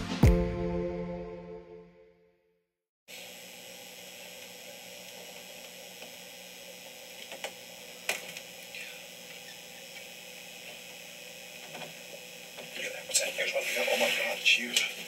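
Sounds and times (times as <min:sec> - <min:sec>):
faint hum: 0:03.8 - 0:15.0.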